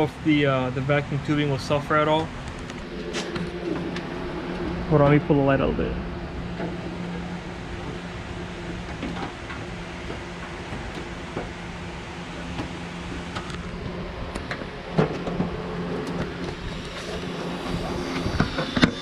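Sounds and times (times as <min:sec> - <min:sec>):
mechanical hum: 0:00.0 - 0:19.0.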